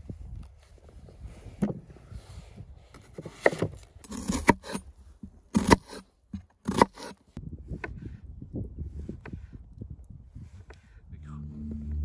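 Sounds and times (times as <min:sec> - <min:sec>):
knife cutting onion on wooden board: 0:06.7 - 0:07.2.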